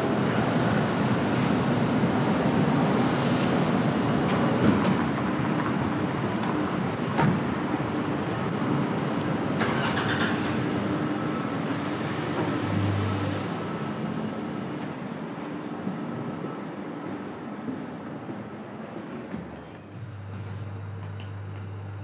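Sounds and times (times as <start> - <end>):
road traffic: 0.0 - 22.0.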